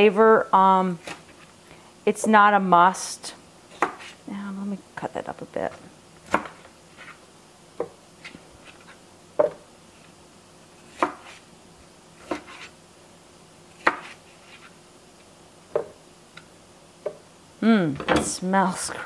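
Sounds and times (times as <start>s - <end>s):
knife cutting on plastic board: 3.7s - 4.2s, 10.9s - 11.4s, 12.2s - 12.7s, 13.8s - 14.8s.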